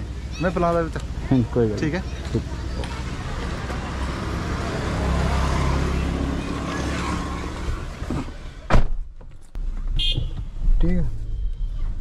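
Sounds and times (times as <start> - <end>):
motor vehicle passing: 0.0 - 8.6.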